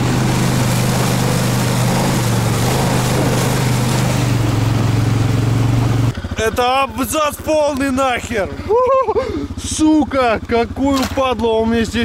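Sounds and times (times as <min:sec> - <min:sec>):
rain hiss: 0:00.0 - 0:05.0
quad bike engine running: 0:00.0 - 0:12.0.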